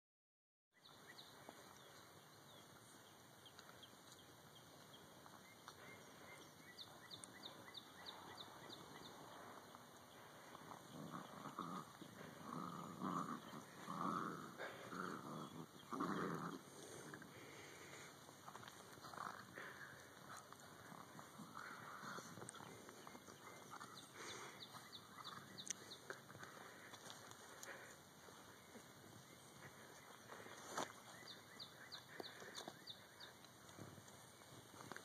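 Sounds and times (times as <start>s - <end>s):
puppies growling: 7.2s - 33.4s.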